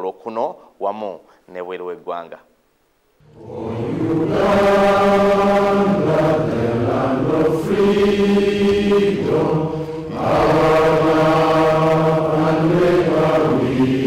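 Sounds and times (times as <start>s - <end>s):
group singing in unison: 3.3s - 14.0s.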